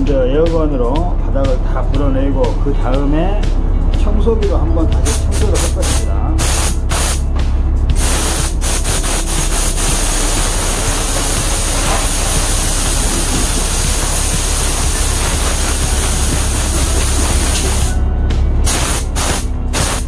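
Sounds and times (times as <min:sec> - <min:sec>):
compressed air hissing: 0:05.0 - 0:07.3, 0:07.9 - 0:18.0, 0:18.6 - 0:20.0.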